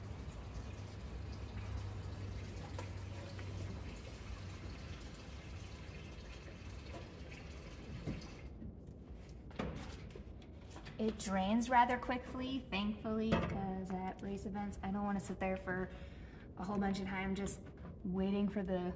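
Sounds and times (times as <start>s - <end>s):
water running into a bucket: 0.0s - 8.6s.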